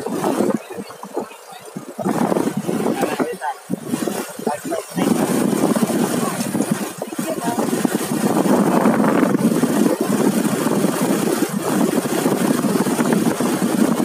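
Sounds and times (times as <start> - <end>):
rushing wind noise: 0.0 - 14.0
motorcycle engine running: 3.9 - 14.0.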